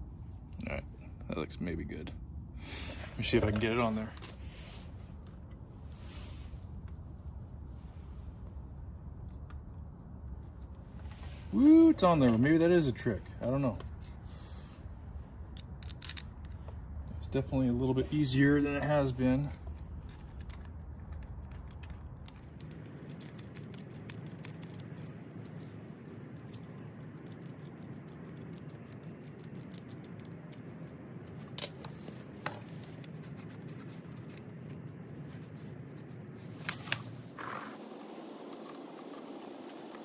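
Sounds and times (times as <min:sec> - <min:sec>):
low background noise: 0:00.0 - 0:40.0
parts scraping and rubbing: 0:18.1 - 0:40.0.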